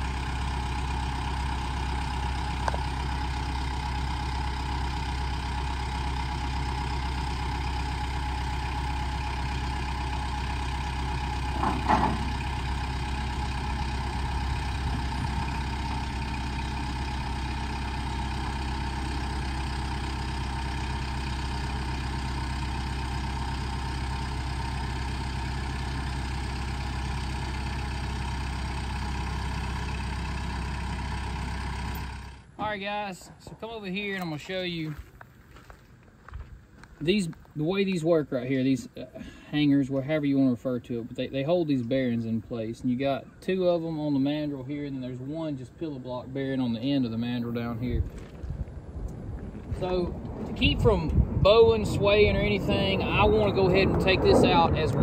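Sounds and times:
tractor diesel engine idling: 0.0s - 55.0s
metal clank: 11.5s - 12.5s
steady whine: 43.5s - 55.0s.

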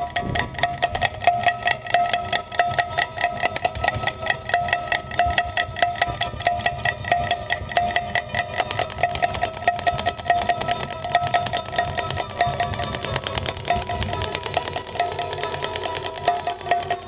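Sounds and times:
drum: 0.0s - 17.0s
plucked strings: 0.0s - 17.0s
small hand cymbals: 0.0s - 17.0s
steady ringing tone: 0.0s - 17.0s.

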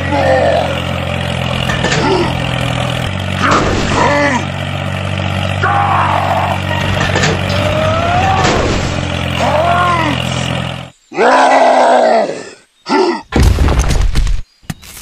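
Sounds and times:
toy tractor engine drone: 0.0s - 11.0s
voice-like cries: 5.6s - 6.7s, 7.4s - 8.6s.

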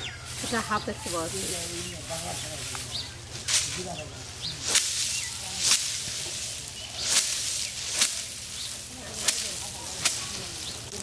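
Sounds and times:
stalks swishing: 2.6s - 11.0s
plants striking a wooden plank: 4.6s - 11.0s.

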